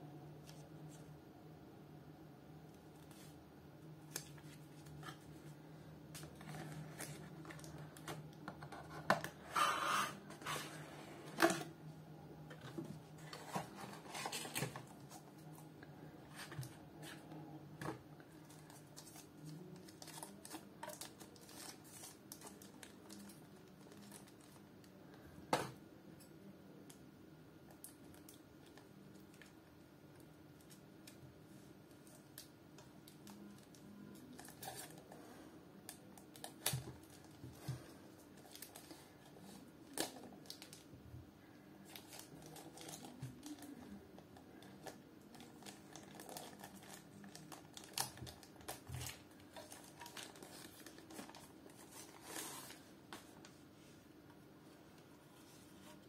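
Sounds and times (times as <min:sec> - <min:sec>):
paper and plastic rustling: 0:04.0 - 0:11.7, 0:12.4 - 0:24.6, 0:41.8 - 0:53.9.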